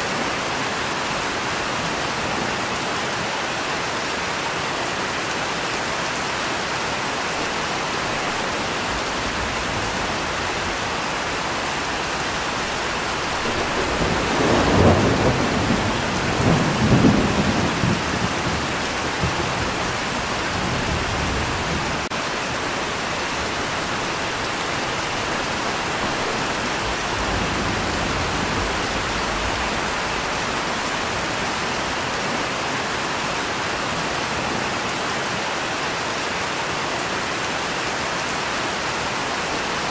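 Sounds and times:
steady rain: 0:00.0 - 0:39.9
thunder rumbling: 0:07.4 - 0:22.1, 0:23.4 - 0:32.0.

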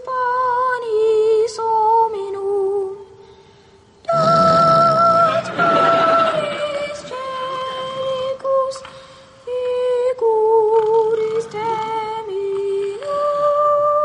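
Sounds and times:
boy singing slow solo: 0:04.0 - 0:14.0.

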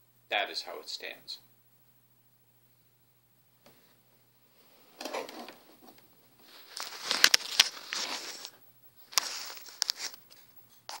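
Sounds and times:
hand rustling on microphone: 0:04.7 - 0:11.0.

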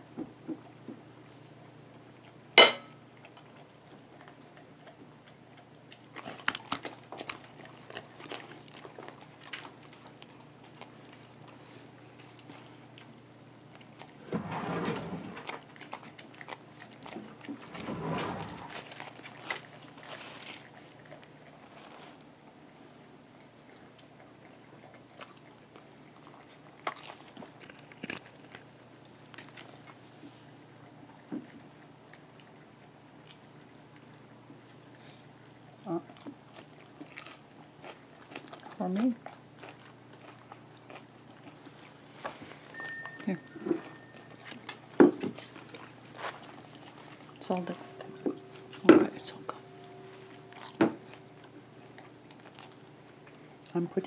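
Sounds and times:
dog chewing: 0:01.4 - 0:14.3, 0:15.4 - 0:17.8, 0:18.4 - 0:54.0
metal utensil clinking on plate: 0:02.6 - 0:02.9.

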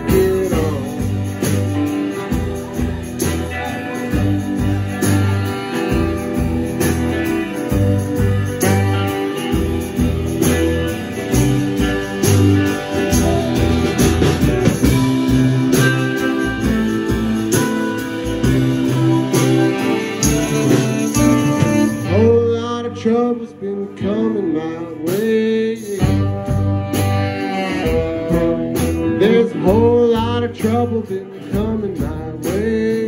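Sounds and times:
drums: 0:00.0 - 0:22.8, 0:23.9 - 0:33.0
low bass line: 0:00.0 - 0:24.8
electric and acoustic guitars: 0:00.0 - 0:33.0
saxophone: 0:02.0 - 0:22.3, 0:26.0 - 0:29.8.

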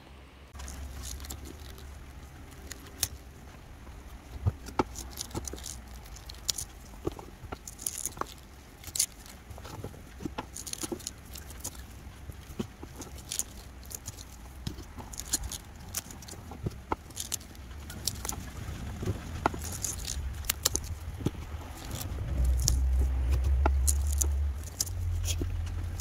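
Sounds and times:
low rumble: 0:00.4 - 0:26.0
knife cutting succulent stems: 0:00.6 - 0:26.0
leaves snapping off: 0:07.5 - 0:09.4, 0:12.5 - 0:26.0.

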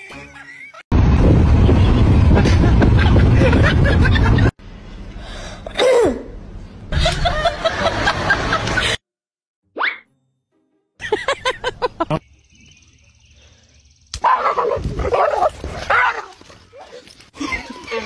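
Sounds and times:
wind and road noise through car window: 0:01.0 - 0:04.4.

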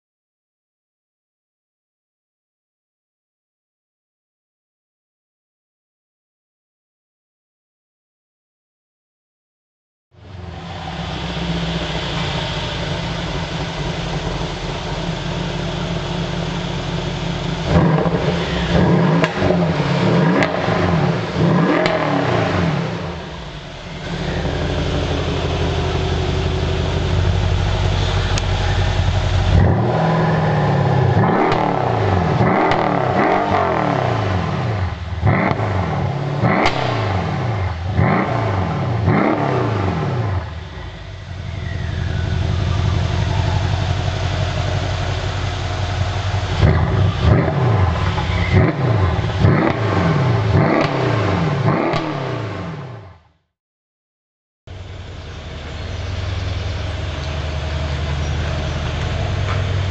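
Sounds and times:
car engine idling and revving: 0:10.2 - 0:53.5, 0:54.7 - 0:59.9
sharp engine rev blips: 0:17.7 - 0:53.0.

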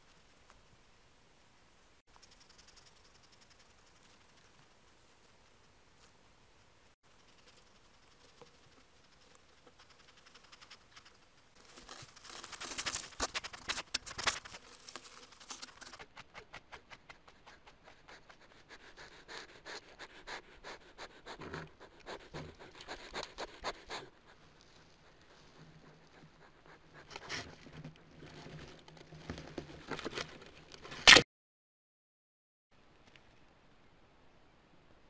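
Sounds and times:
animal scratching: 0:02.1 - 0:06.1, 0:07.1 - 0:30.4
animal huffing: 0:15.6 - 0:27.7.

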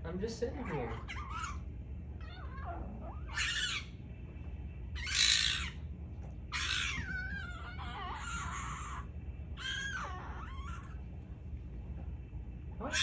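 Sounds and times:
fox screechy squawks: 0:00.6 - 0:01.6, 0:02.2 - 0:03.9, 0:05.0 - 0:05.8, 0:06.5 - 0:11.0
fox wavering whines: 0:00.6 - 0:04.1, 0:04.9 - 0:05.9, 0:06.5 - 0:11.2, 0:12.8 - 0:13.0.

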